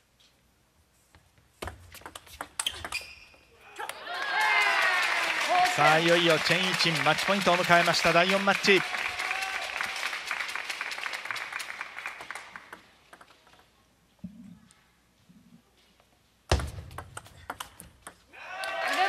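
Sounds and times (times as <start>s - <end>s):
crowd applause and clapping: 4.1s - 12.8s.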